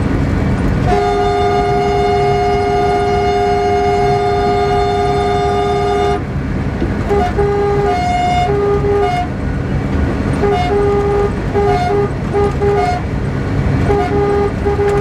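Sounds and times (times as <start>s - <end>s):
trains rumbling at speed: 0.0s - 15.0s
locomotive horn two-note blasts: 0.8s - 6.3s, 7.0s - 9.4s, 10.4s - 13.1s, 13.8s - 15.0s.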